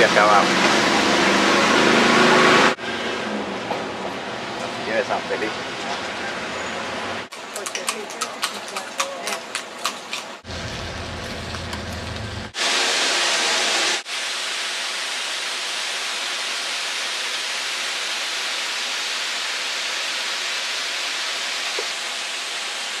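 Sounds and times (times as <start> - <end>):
low rumble: 10.5 - 12.5.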